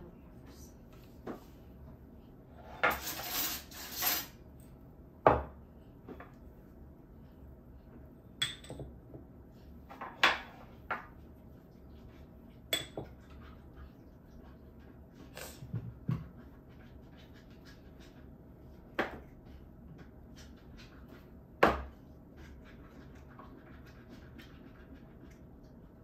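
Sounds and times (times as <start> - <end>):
dishes and utensils clinking: 2.8 - 4.4.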